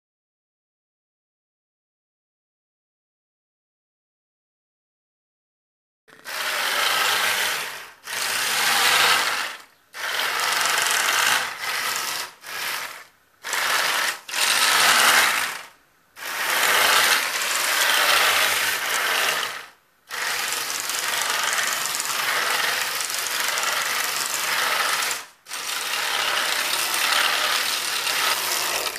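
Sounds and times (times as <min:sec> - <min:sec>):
motors and gearboxes whirring: 0:06.1 - 0:28.9.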